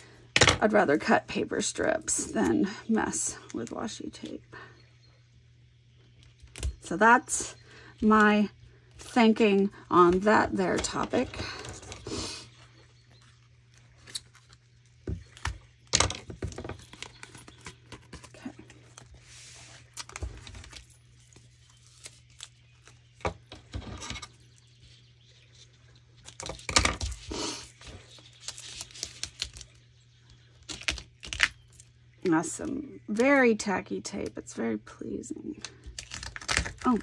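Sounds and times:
paper and tape rustling: 16.3s - 29.8s.

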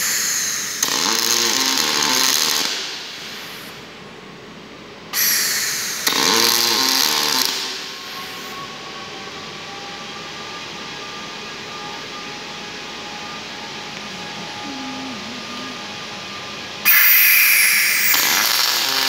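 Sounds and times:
welding torch hissing: 16.9s - 19.0s.

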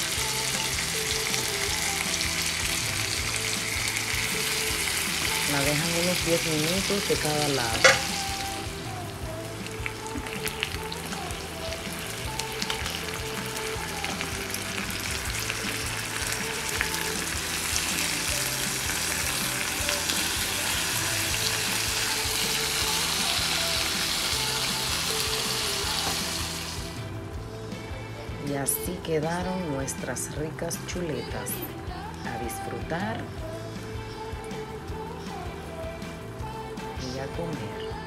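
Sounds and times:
pork chops sizzling in a pan: 0.0s - 27.0s
soft background music: 0.0s - 38.0s.

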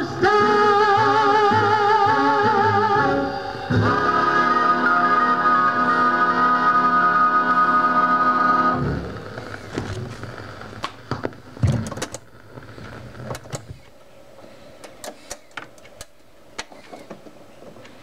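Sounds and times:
record player mechanism clicking: 10.8s - 14.0s, 14.8s - 18.0s.

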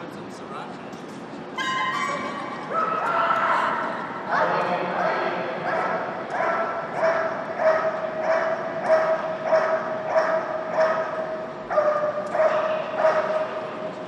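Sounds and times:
dog barking: 5.6s - 13.6s.

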